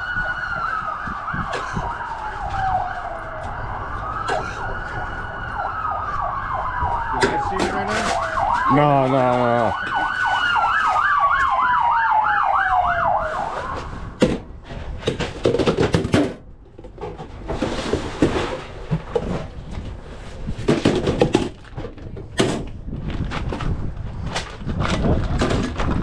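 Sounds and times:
emergency siren warbling: 0.0s - 14.2s
paper and plastic bag rustling: 6.9s - 11.7s.

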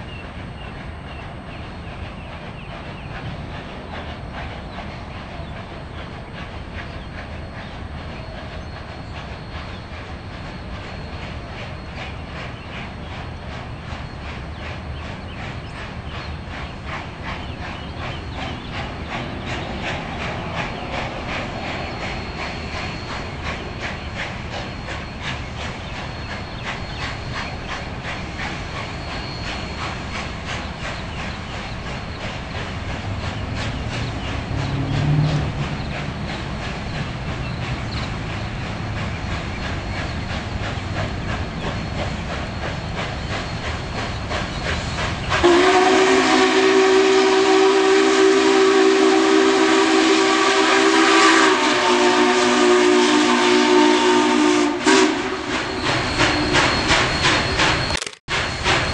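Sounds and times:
steam locomotive rhythmic beat: 0.0s - 58.9s
steam whistle long blast: 45.4s - 56.6s.

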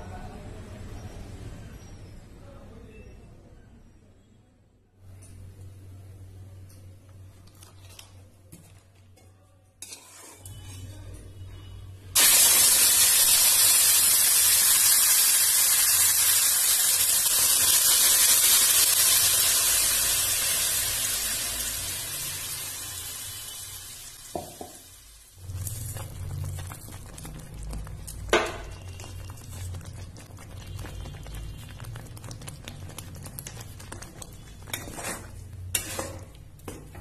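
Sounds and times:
food sizzling in hot oil: 12.2s - 36.2s.

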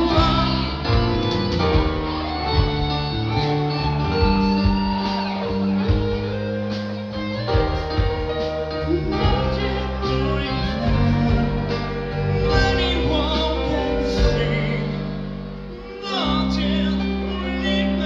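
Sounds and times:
man singing into microphone: 0.0s - 1.2s, 8.0s - 18.0s
live rock band playing: 0.0s - 18.0s.

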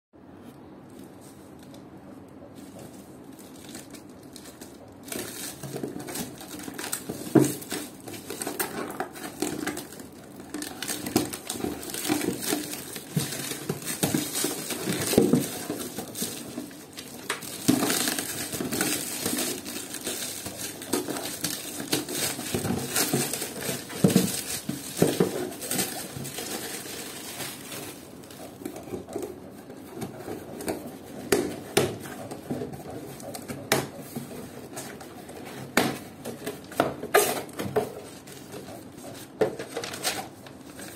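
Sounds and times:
plastic wrap crinkling and tearing: 2.6s - 40.9s.

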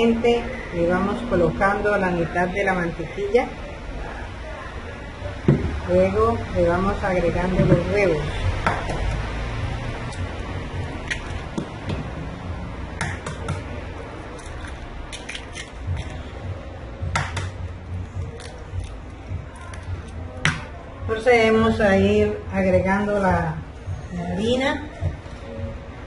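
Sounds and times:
eggs cracking: 11.0s - 11.8s, 14.3s - 16.2s, 18.3s - 20.7s.

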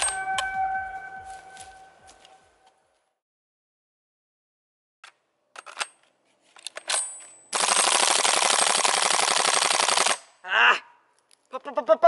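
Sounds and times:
airsoft gun full-auto burst: 7.6s - 10.3s.

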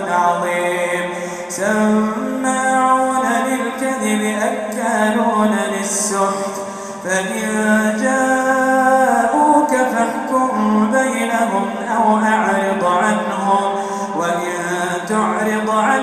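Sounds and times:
man chanting melodically: 0.0s - 16.0s
short breath: 1.1s - 1.5s, 6.6s - 7.0s, 13.8s - 14.2s.

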